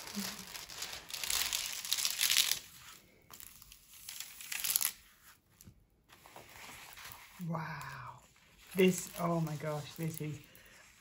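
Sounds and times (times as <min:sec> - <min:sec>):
plastic film crinkling: 0:00.0 - 0:05.4, 0:08.6 - 0:11.0.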